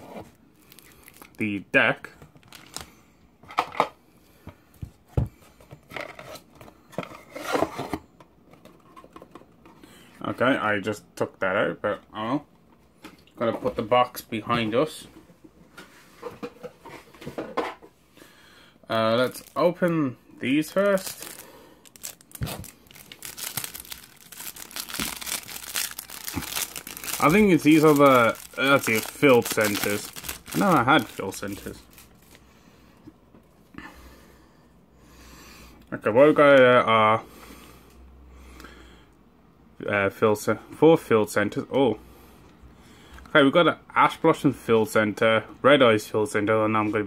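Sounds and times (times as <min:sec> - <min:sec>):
plastic wrapping crinkling: 0:00.6 - 0:01.4, 0:02.4 - 0:02.9, 0:19.1 - 0:32.4
cardboard rustle: 0:20.9 - 0:32.3.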